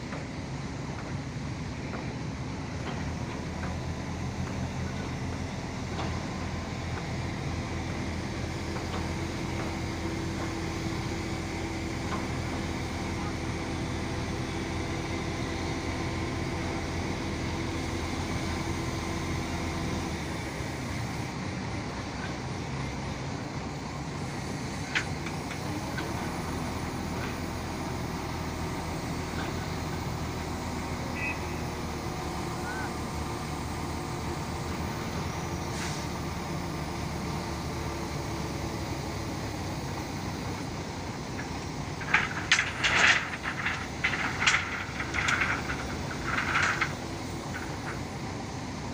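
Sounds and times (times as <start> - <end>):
diesel engine under load: 0.0 - 48.9
steady hum: 40.9 - 48.8.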